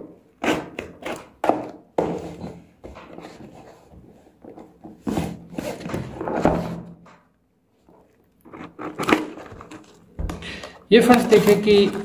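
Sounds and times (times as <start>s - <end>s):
cardboard and tape tearing: 8.4s - 10.0s, 11.0s - 12.0s.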